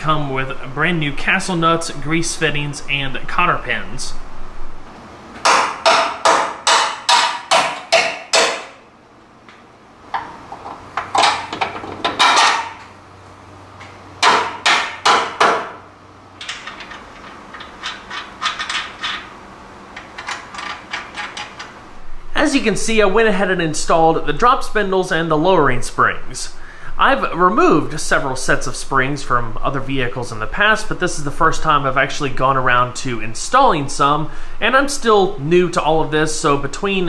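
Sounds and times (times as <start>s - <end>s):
hammer blows: 5.4s - 8.8s.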